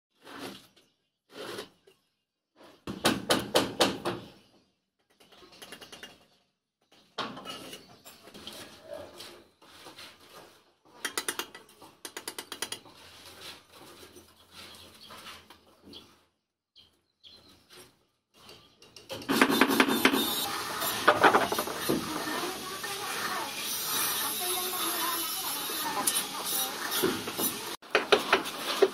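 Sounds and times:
trowel tapping and scraping bricks: 10.9s - 13.1s, 21.0s - 22.3s, 27.0s - 28.9s.

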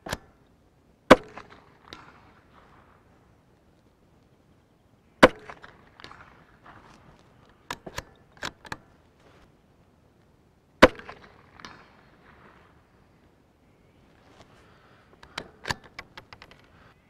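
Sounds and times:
rifle shots: 1.1s - 3.1s, 5.2s - 6.9s, 10.8s - 12.8s
rifle bolt clicks: 7.5s - 8.9s, 15.2s - 16.7s.

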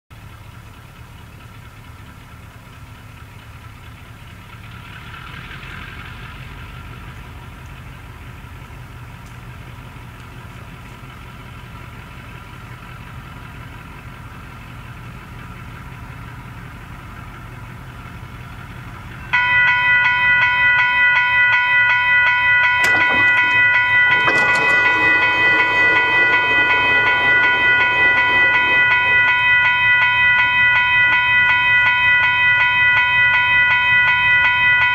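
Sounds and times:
distant diesel train rumble: 0.1s - 34.9s
crossing warning bell ringing: 5.3s - 34.9s
rough low sound: 22.8s - 32.5s.

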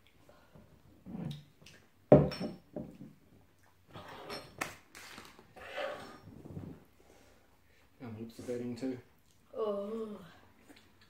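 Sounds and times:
glass bottle knocking on wooden table: 2.1s - 3.0s.

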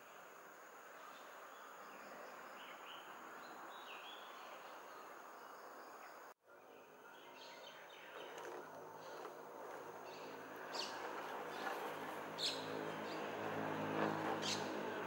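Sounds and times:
insect hiss: 0.0s - 6.3s.

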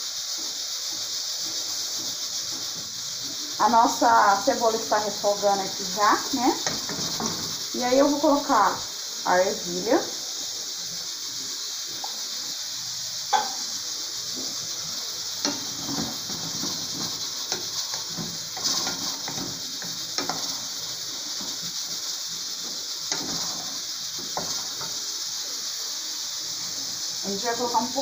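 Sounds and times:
vegetables sizzling in a pot: 0.0s - 28.0s
wooden spoon scraping a pot: 0.3s - 8.0s, 15.4s - 22.0s, 22.6s - 25.1s.

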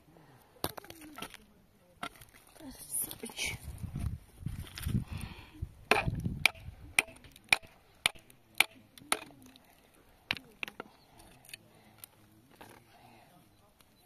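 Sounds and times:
sharp chopping knocks: 5.9s - 9.3s.

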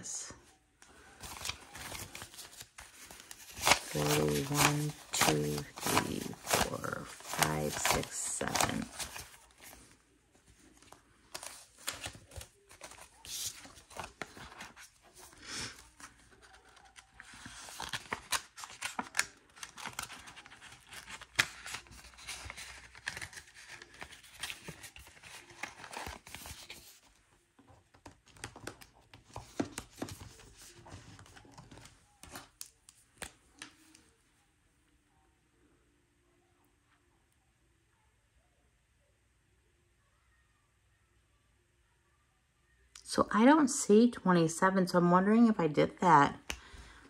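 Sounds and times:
paper money and envelopes rustling: 0.3s - 34.3s.

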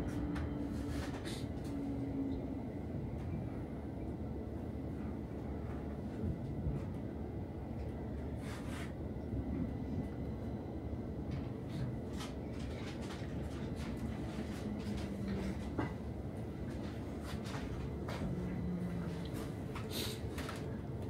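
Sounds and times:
metro car low rumble: 0.0s - 21.0s.

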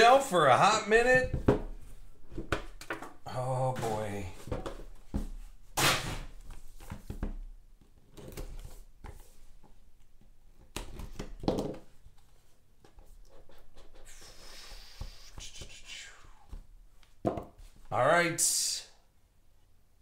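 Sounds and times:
loud hissing scraping: 14.1s - 16.3s.

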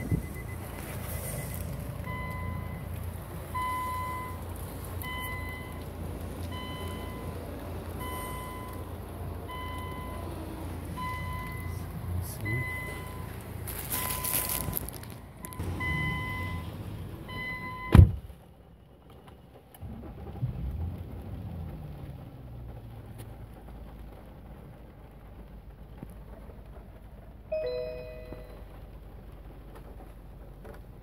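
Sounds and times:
car warning chime dinging: 0.0s - 16.7s, 17.3s - 18.1s, 27.5s - 28.9s
low engine hum: 0.0s - 31.0s
car door thump: 17.9s - 18.3s
two-note electronic chime: 27.6s - 28.7s.

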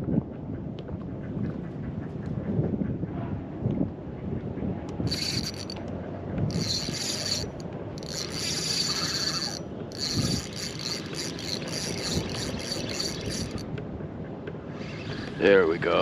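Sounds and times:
fishing reel buzzing and clicking: 5.1s - 5.8s, 6.5s - 13.6s.

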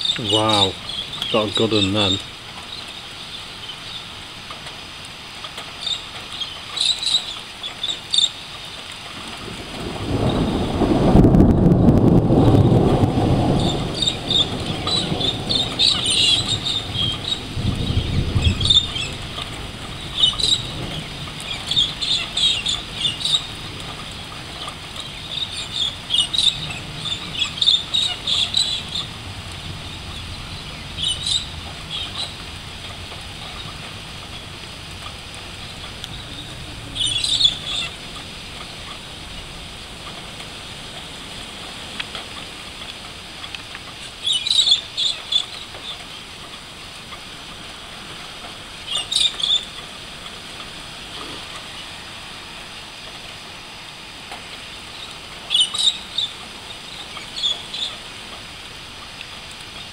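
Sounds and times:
birds chirping: 0.0s - 4.8s, 5.6s - 9.0s, 12.4s - 43.4s, 44.0s - 46.4s, 47.0s - 52.7s, 54.6s - 58.3s
thunder rumbling: 9.2s - 42.8s.

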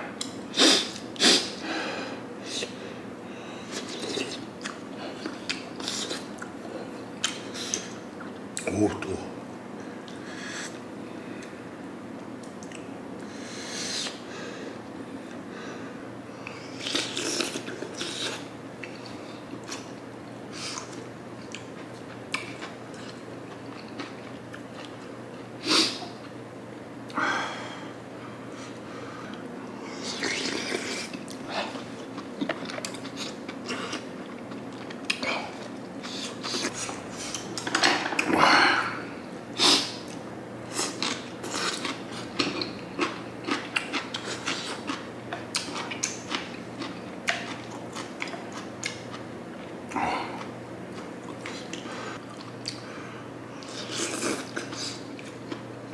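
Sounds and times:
chewing: 3.7s - 6.5s, 30.0s - 37.6s, 40.1s - 52.8s.

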